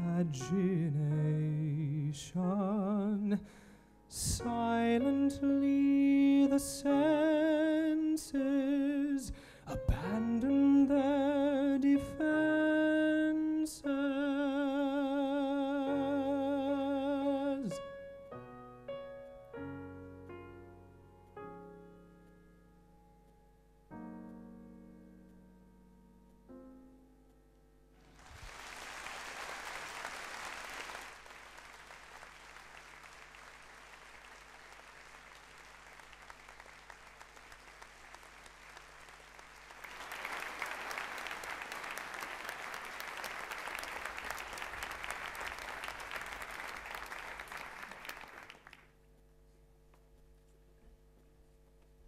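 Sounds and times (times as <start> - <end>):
piano notes: 0.0 - 28.1
audience applauding: 28.0 - 48.9.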